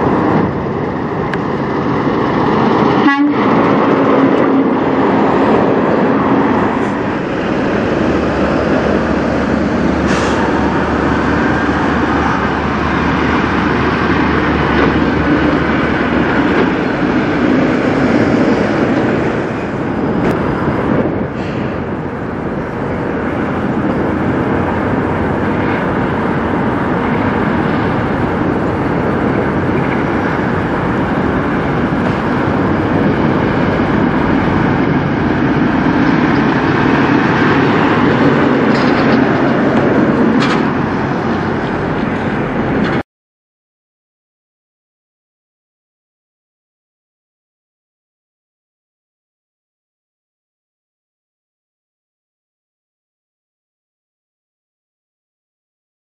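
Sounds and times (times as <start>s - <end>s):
truck diesel engines passing: 0.0s - 43.0s.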